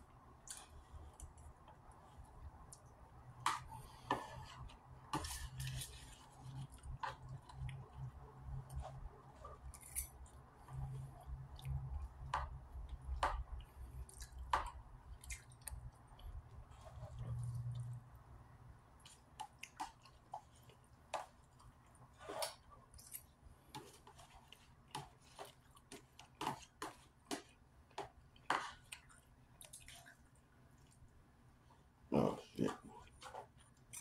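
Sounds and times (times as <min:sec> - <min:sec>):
chewing: 0:13.6 - 0:18.2, 0:18.9 - 0:31.2.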